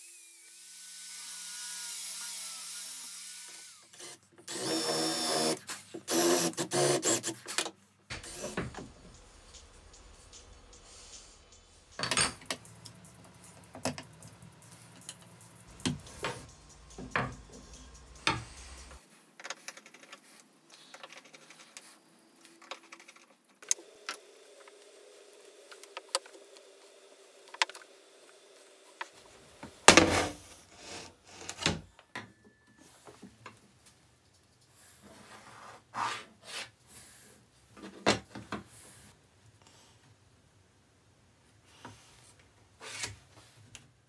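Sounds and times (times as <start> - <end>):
tools knocking on wooden workbench: 15.8 - 17.6.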